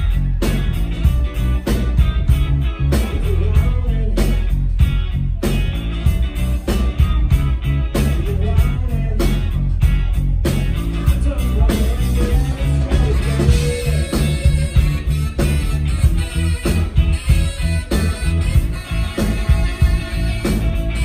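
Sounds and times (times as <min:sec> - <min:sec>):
electric guitars: 0:00.0 - 0:21.0
heavy bass line: 0:00.0 - 0:21.0
steady drum beat: 0:00.0 - 0:21.0.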